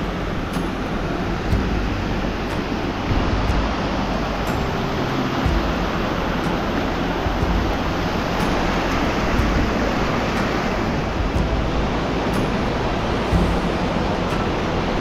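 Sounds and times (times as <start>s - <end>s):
mountain stream rushing: 0.0s - 15.0s.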